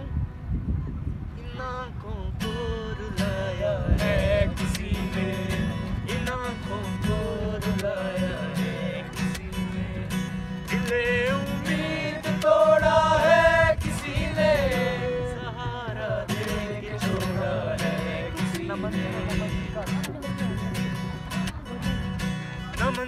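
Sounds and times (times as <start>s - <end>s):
man singing: 1.4s - 23.0s
acoustic guitar strumming: 1.5s - 23.0s
group singing along: 3.7s - 19.6s.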